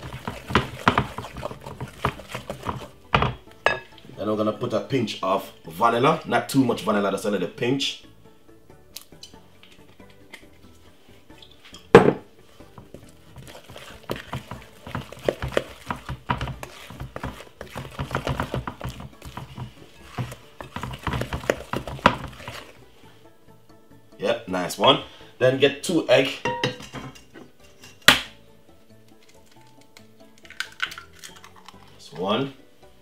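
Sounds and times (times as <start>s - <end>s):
wooden spoon beating batter in glass bowl: 0.0s - 3.9s, 12.6s - 22.8s.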